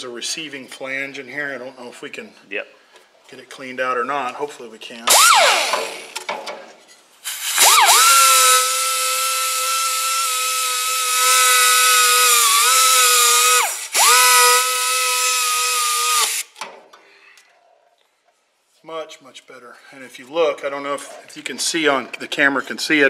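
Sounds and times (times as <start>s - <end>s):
air grinder whining: 5.1s - 6.2s, 7.2s - 16.6s
air hissing: 7.2s - 16.6s.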